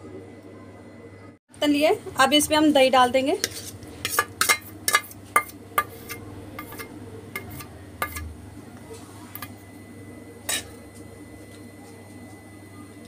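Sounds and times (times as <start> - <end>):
metal spoon clinking on steel bowl: 3.5 - 8.2.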